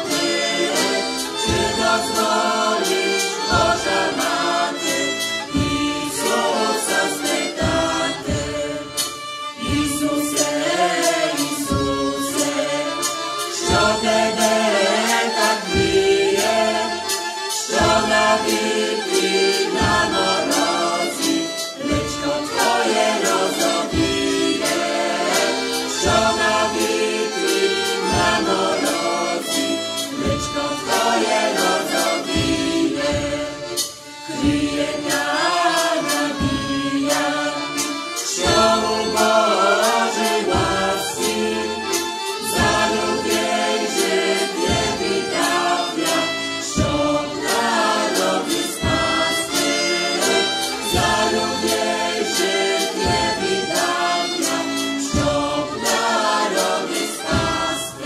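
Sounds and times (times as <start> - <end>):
choir singing in harmony: 0.0 - 58.0
low beat: 0.0 - 58.0.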